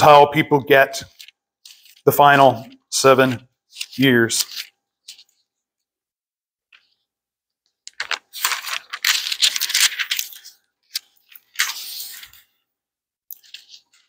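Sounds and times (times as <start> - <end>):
book pages flipping: 1.0 - 5.9, 6.7 - 7.1, 7.7 - 12.6, 13.3 - 14.0.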